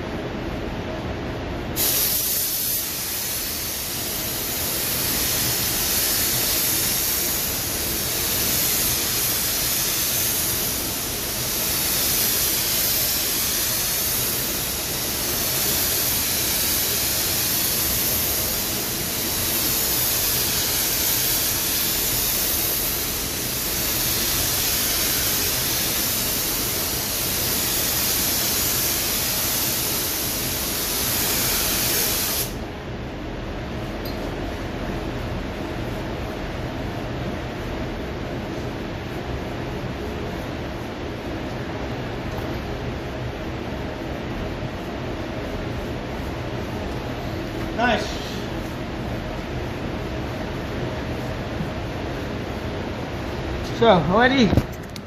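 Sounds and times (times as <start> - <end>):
paint spray gun hissing: 1.8 - 32.6.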